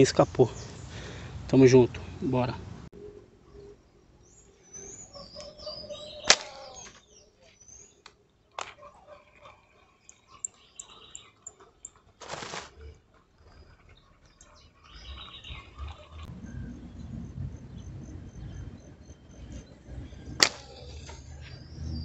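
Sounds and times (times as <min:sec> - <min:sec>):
birds chirping: 0:00.0 - 0:22.0
sharp snap: 0:06.3 - 0:07.0, 0:20.4 - 0:20.7
brief rustle: 0:12.2 - 0:12.8.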